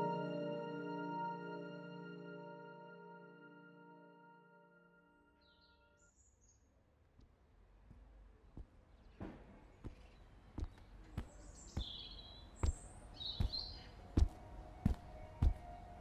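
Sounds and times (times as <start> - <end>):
hard-soled footsteps on pavement: 7.2 - 15.8
birds chirping: 8.8 - 16.0.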